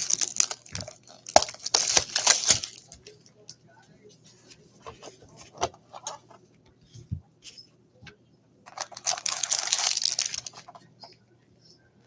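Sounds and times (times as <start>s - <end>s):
plastic wrap crinkling: 0.0s - 3.0s, 8.7s - 10.8s.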